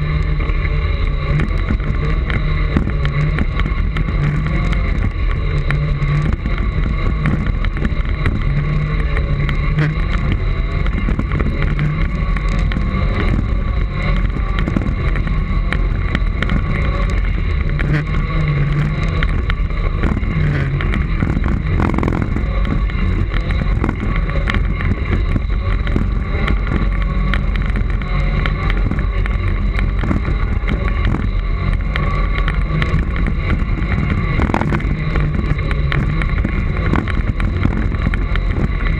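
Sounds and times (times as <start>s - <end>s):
constant high whine: 0.0s - 38.9s
low rumble over bumpy track: 0.0s - 38.9s
wind noise on microphone: 0.0s - 38.9s.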